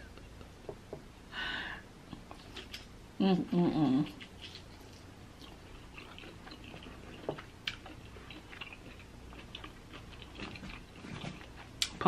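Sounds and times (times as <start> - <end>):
faint chewing: 4.1 - 12.0.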